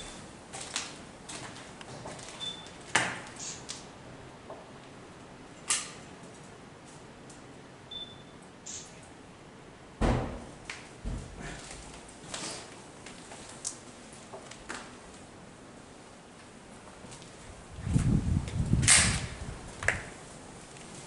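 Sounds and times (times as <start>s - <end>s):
heavy thump: 10.0s - 11.6s.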